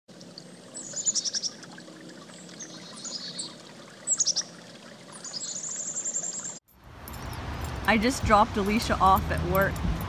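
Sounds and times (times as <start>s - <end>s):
songbirds chirping and trilling: 0.4s - 6.6s.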